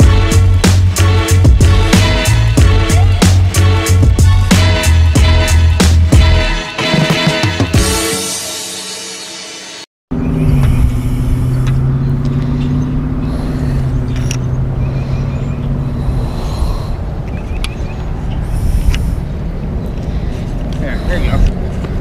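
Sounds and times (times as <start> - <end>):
vehicle engine running: 10.1 - 22.0.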